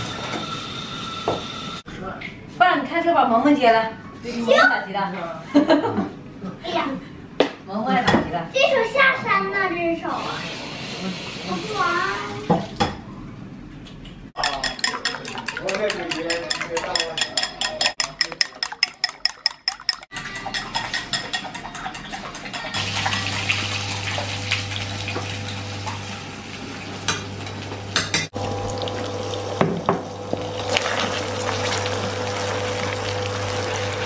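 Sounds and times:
chopsticks beating eggs in bowl: 14.4s - 22.9s
eggs sizzling in pan: 28.3s - 34.0s.

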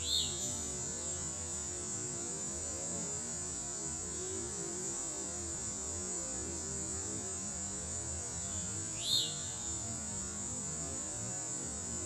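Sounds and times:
bird chirp: 0.0s - 0.6s, 9.0s - 9.5s.

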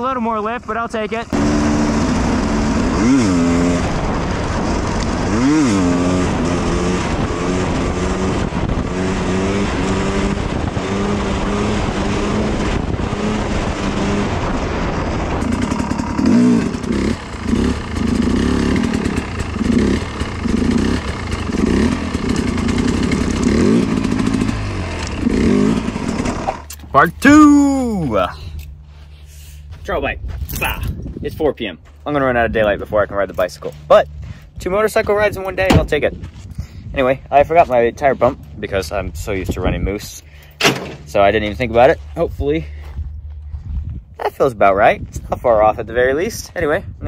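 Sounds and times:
dirt bike engine revving: 0.0s - 28.3s.

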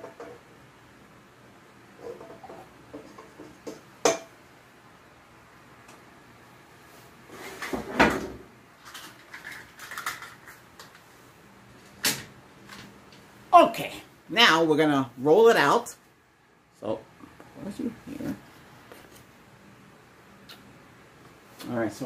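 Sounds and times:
utensils and bowls clattering: 8.8s - 10.6s.

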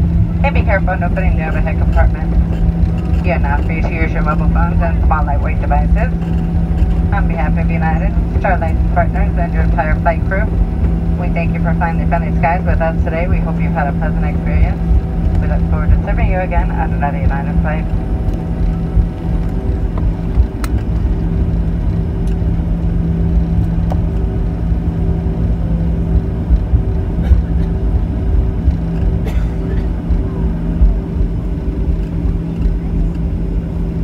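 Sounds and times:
jet engine hum: 0.0s - 34.0s
low cabin rumble: 0.0s - 34.0s.

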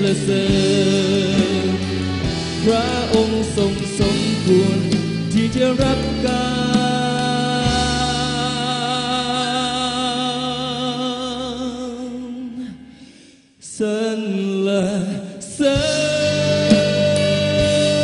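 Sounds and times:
man singing with vibrato: 0.0s - 18.0s
music: 0.0s - 18.0s
worship song backing music: 0.0s - 18.0s.

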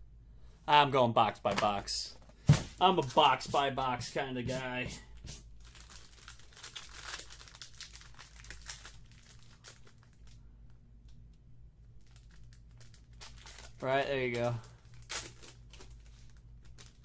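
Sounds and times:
foil pack crinkling and tearing: 5.4s - 10.4s, 12.0s - 17.0s.

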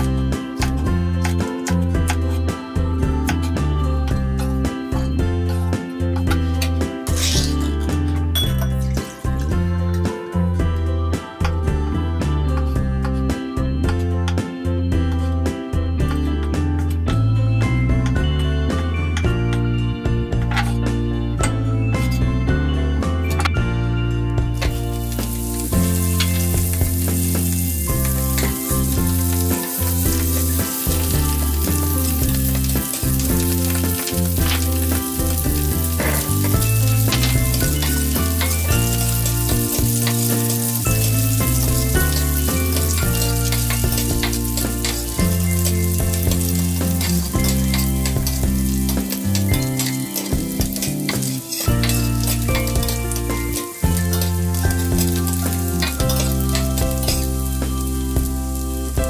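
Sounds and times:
butter and garlic sizzling: 0.0s - 9.8s, 24.6s - 59.0s
background music: 0.0s - 59.0s
spatula clicking and scraping: 28.0s - 57.3s.

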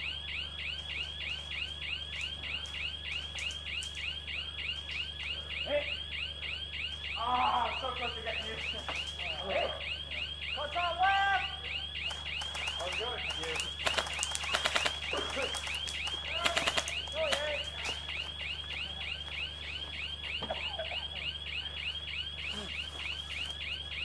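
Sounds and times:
electronic alarm chirping: 0.0s - 24.0s
sharp clicks: 12.0s - 18.2s.

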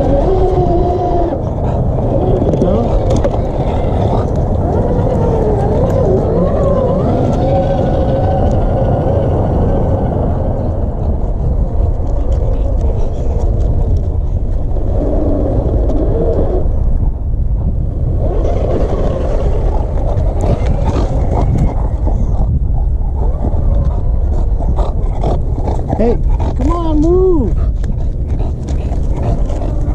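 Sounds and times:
electric motor whining: 0.0s - 11.0s
steady low noise: 0.0s - 29.9s.

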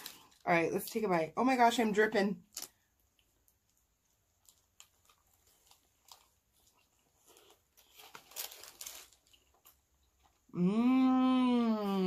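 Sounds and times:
chewing food: 2.6s - 10.5s.

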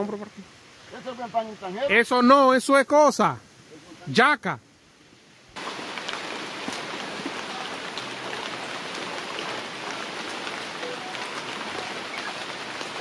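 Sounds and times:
rain pattering: 5.5s - 13.0s.

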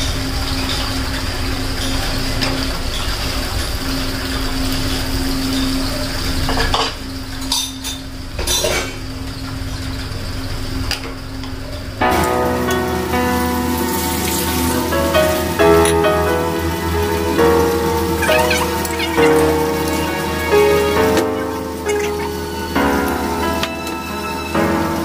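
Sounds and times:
music: 12.0s - 25.0s.

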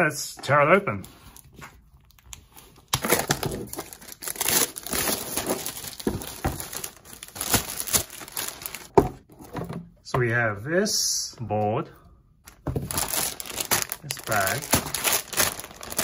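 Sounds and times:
plastic shrink-wrap tearing and crinkling: 2.9s - 8.9s, 12.9s - 16.0s.

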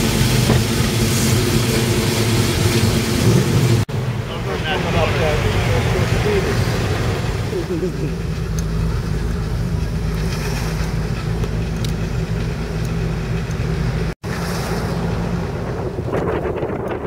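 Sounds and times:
car engine running: 0.0s - 17.0s
road noise: 0.0s - 17.0s
wind noise on microphone: 14.7s - 17.0s.

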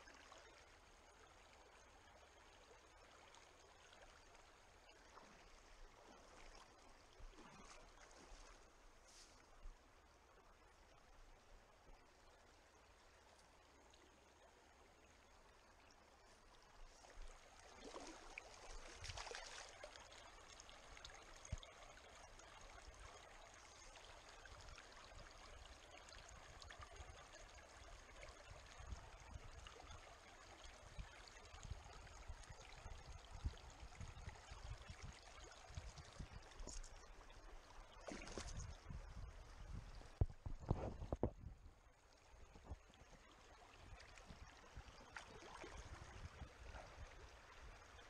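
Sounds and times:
stream trickling: 0.0s - 48.0s
soft knocks and low rumbles: 40.1s - 41.6s.

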